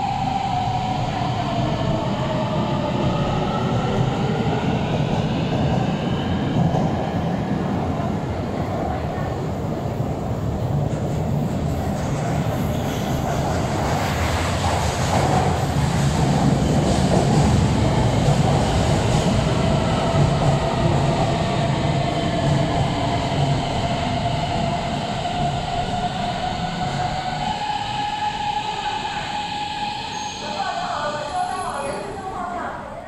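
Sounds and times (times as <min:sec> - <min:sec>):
train braking: 0:25.5 - 0:32.5.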